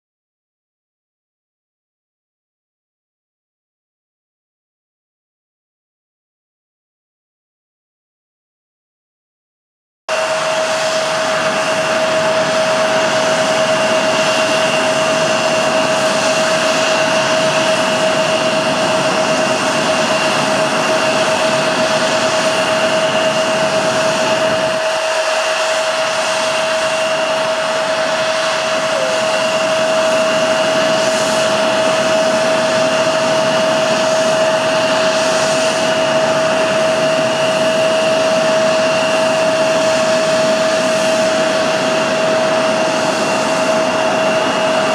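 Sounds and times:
jet engines running with whine: 10.1s - 44.9s.

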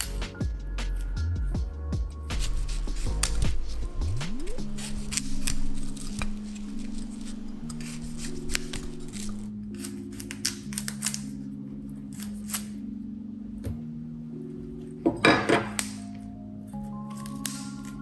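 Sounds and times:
soft background music: 0.0s - 18.0s
knife cutting on wooden board: 2.3s - 9.5s.

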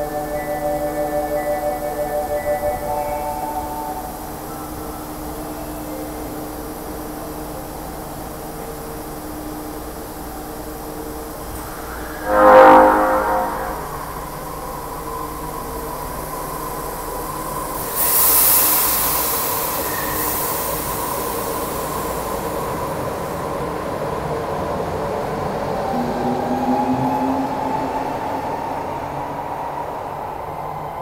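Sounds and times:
train cars running: 0.0s - 31.0s
train hum: 0.0s - 31.0s
loud hiss of air: 17.7s - 23.0s.

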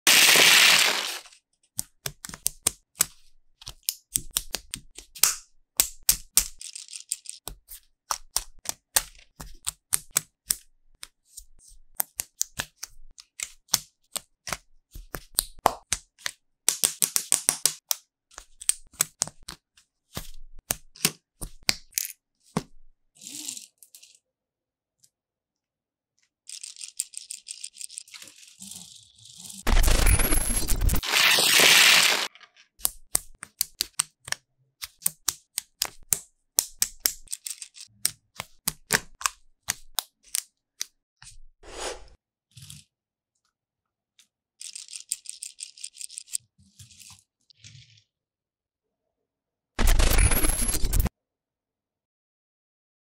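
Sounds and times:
plastic pieces tumbling onto table: 0.1s - 1.3s
plastic pieces clicking together: 0.1s - 10.7s, 12.0s - 19.6s, 26.5s - 41.0s, 44.6s - 46.4s.

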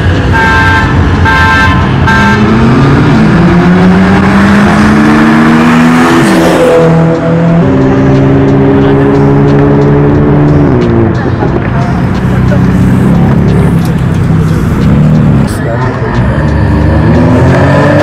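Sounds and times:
car engine accelerating: 0.0s - 18.0s
car horn toots: 0.2s - 2.8s.

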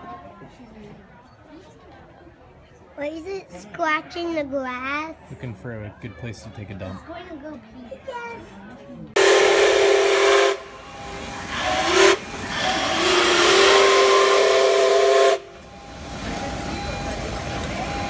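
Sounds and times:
hiss of steam: 9.2s - 18.0s
steam locomotive whistle: 9.2s - 18.0s.

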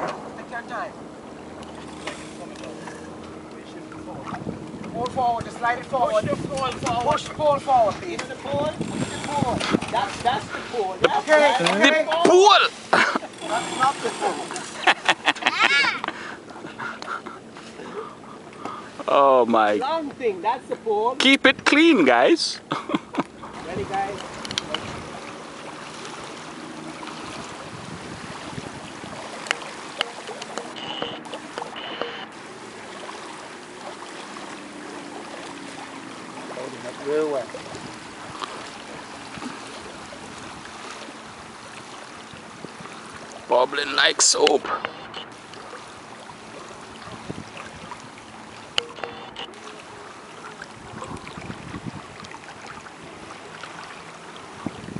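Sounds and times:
water rushing along a hull: 0.0s - 54.9s
wind on microphone: 4.0s - 11.2s, 23.3s - 25.3s, 26.9s - 29.5s, 37.5s - 41.6s, 42.2s - 43.2s, 46.9s - 48.0s, 50.6s - 53.3s, 54.4s - 54.9s
short high tones: 30.6s - 32.3s, 48.8s - 49.5s.

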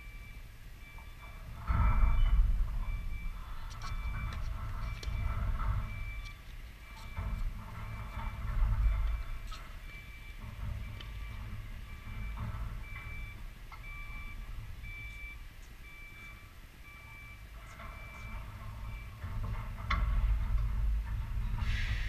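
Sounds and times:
vehicle reversing beeper: 0.0s - 22.0s
low rumble: 1.6s - 17.4s.

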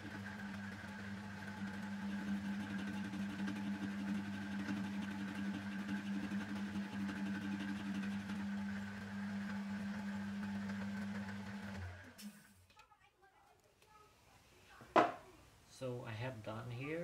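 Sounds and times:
lathe motor hum: 0.0s - 12.2s.

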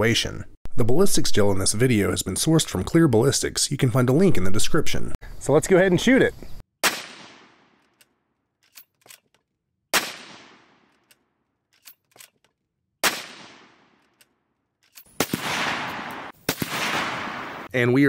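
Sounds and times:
rifle shots with echo: 6.8s - 7.8s, 9.9s - 10.9s, 13.0s - 14.0s, 15.1s - 17.7s
rifle bolt clicks: 7.8s - 9.5s, 10.9s - 12.6s, 13.9s - 15.2s.

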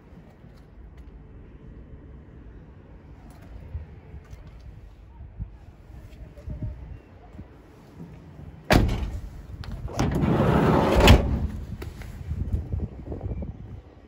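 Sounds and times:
door slam: 8.7s - 9.3s, 9.9s - 11.6s
van door bang: 8.7s - 11.7s
sliding door rumble: 8.7s - 11.9s.

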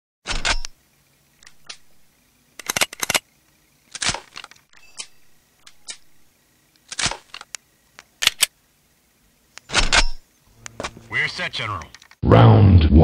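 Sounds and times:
sharp cracks and clicks: 2.6s - 3.3s, 3.9s - 6.1s, 6.7s - 8.5s.

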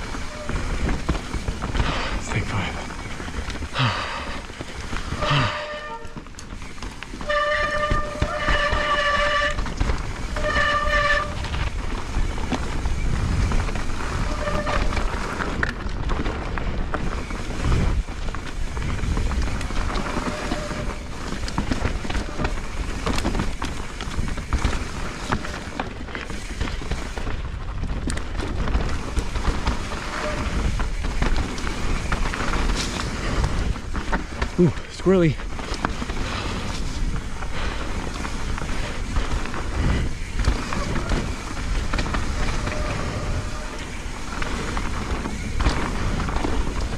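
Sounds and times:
disc brakes squealing: 0.0s - 1.4s, 5.0s - 13.3s, 14.0s - 15.4s, 19.8s - 23.2s, 29.0s - 33.7s, 40.1s - 46.0s
bike tyres rumbling over mud: 0.0s - 46.9s.

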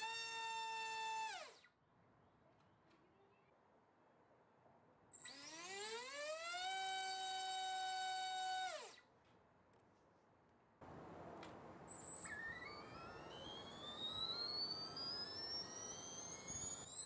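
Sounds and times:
drone motor whine: 5.3s - 9.0s, 11.9s - 17.0s.

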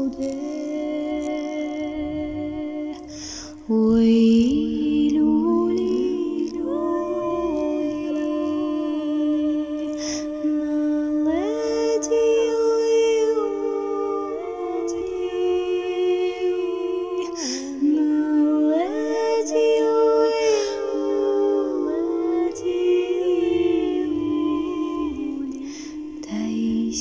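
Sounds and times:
wordless singing voice: 0.0s - 27.0s
singer breathing: 3.0s - 3.7s, 25.6s - 26.2s.

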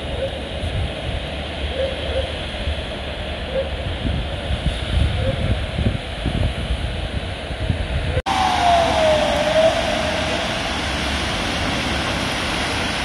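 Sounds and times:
downward gliding tone: 8.3s - 11.6s
heavy rain falling: 8.3s - 13.0s
traffic on wet street: 8.3s - 13.0s.

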